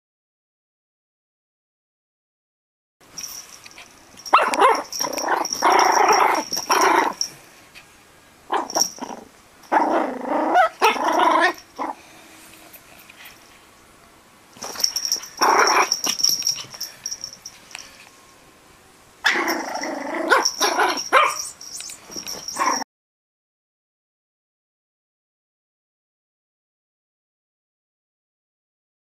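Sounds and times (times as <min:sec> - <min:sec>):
puppy growling and yipping: 0:03.7 - 0:07.4, 0:08.5 - 0:12.1, 0:14.6 - 0:17.0, 0:19.2 - 0:22.8.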